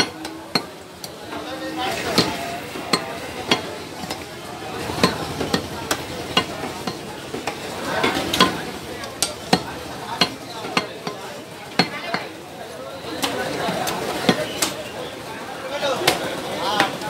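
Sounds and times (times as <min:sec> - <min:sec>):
cleaver chopping meat on wood: 0:04.8 - 0:12.3.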